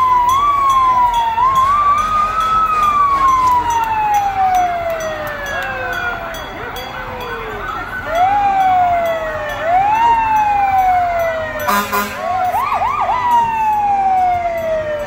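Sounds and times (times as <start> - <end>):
short siren blast: 0.0 - 5.0
fire engine siren wailing: 0.0 - 15.0.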